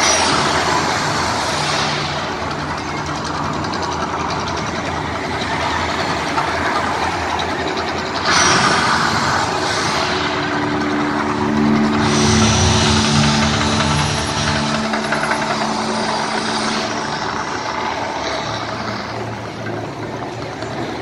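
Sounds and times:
road traffic passing: 0:00.5 - 0:21.0.

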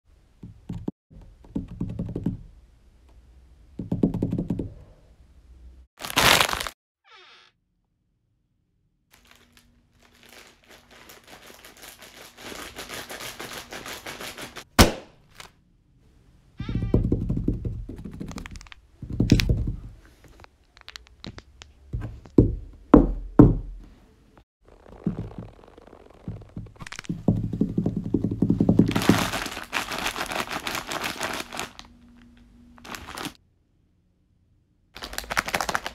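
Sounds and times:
sharp crack: 0:14.7 - 0:15.5
dull thuds and knocks: 0:16.7 - 0:20.0, 0:21.9 - 0:23.8, 0:24.9 - 0:29.5.

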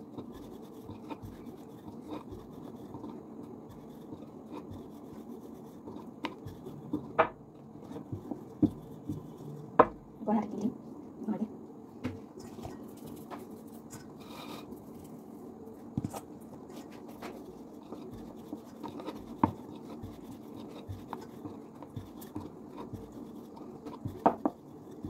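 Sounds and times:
rolling pin rubbing dough: 0:00.0 - 0:10.1, 0:16.0 - 0:25.0.

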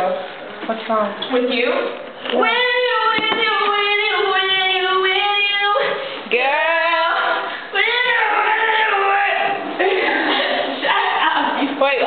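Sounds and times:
woman singing unaccompanied: 0:02.3 - 0:12.0.

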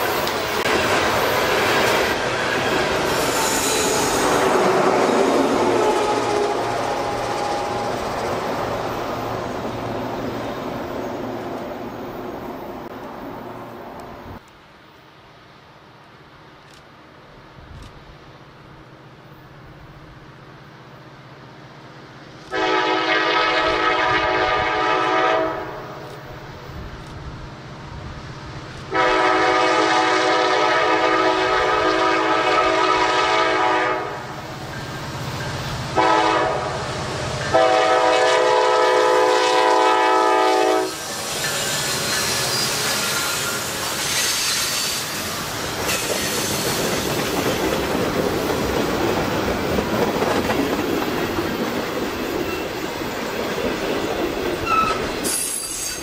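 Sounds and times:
passing train rumble and clatter: 0:00.0 - 0:56.0
locomotive air horn: 0:22.5 - 0:26.1, 0:28.9 - 0:34.3, 0:35.9 - 0:36.9, 0:37.5 - 0:41.0.

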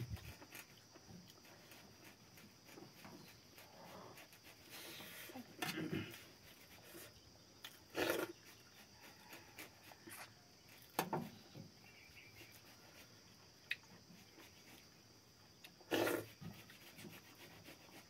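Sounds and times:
mouth eating noises: 0:07.6 - 0:08.8, 0:15.6 - 0:16.4.

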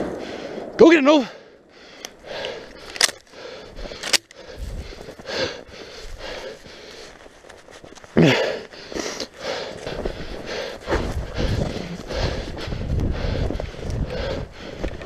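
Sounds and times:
person breathing heavily: 0:00.1 - 0:15.0
footsteps crunching in snow: 0:04.4 - 0:15.0
person grunting: 0:08.2 - 0:08.6.

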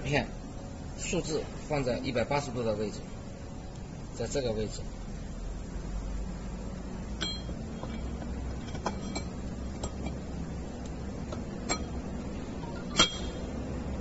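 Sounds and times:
steady low hum: 0:00.0 - 0:14.0
steel parts clinking: 0:07.2 - 0:10.3, 0:11.3 - 0:12.0, 0:12.6 - 0:13.6.

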